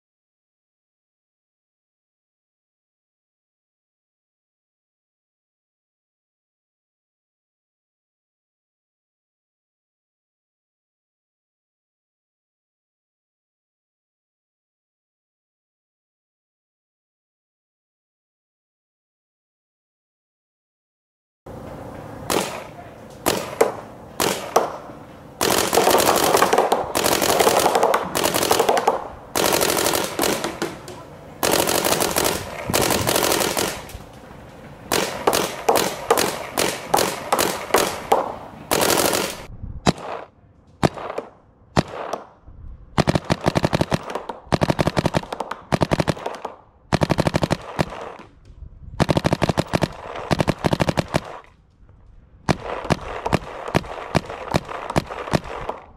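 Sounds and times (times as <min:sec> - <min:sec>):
paintball marker firing: 0:22.3 - 0:34.1, 0:34.9 - 0:42.4, 0:43.0 - 0:48.4, 0:49.0 - 0:51.6, 0:52.4 - 0:55.9.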